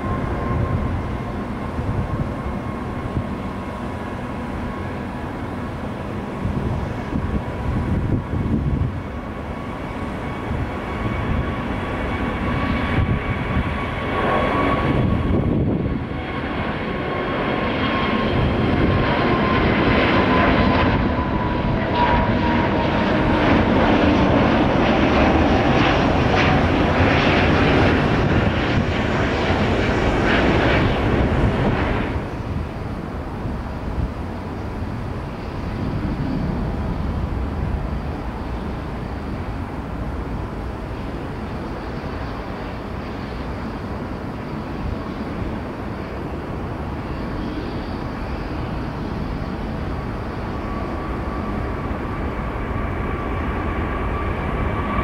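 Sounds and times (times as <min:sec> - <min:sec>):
jet engine rumble: 0:00.0 - 0:55.0
jet takeoff roar: 0:00.0 - 0:55.0.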